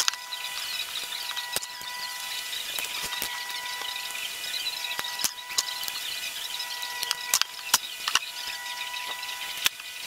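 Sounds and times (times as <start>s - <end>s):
faint steady whine: 0.0s - 10.0s
plastic parts clicking: 7.0s - 8.3s.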